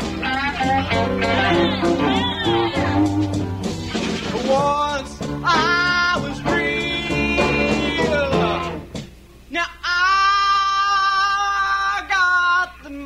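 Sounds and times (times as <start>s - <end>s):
blues-rock band playing: 0.0s - 9.2s.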